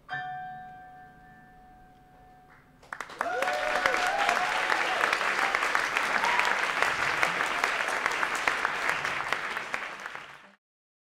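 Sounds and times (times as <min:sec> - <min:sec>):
audience clapping: 0:02.8 - 0:10.6
audience whooping: 0:03.0 - 0:10.4.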